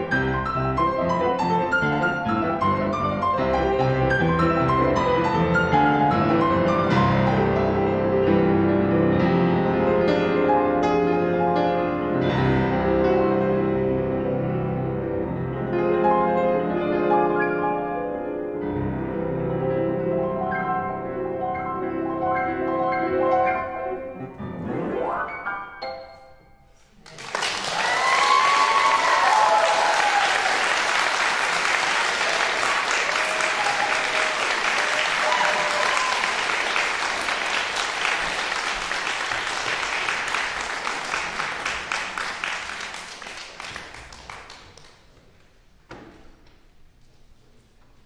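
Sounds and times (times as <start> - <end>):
jazz piano playing: 0.0 - 26.8
audience applause: 27.0 - 45.1
audience cheering: 27.2 - 40.4.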